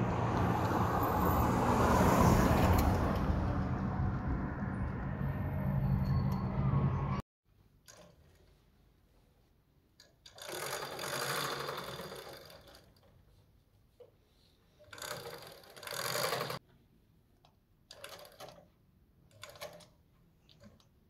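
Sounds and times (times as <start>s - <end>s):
small machine whirring: 10.3s - 13.0s, 14.8s - 16.6s.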